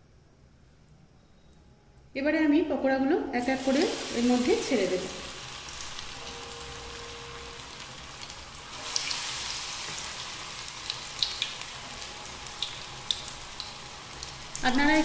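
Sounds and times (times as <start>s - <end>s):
hot oil sizzling: 3.4s - 15.0s.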